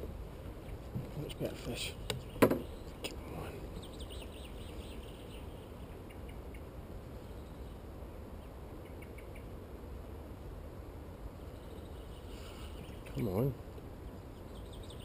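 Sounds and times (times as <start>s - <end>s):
steady low rumble: 0.0s - 15.0s
faint bird chirps: 1.7s - 9.6s, 11.3s - 15.0s.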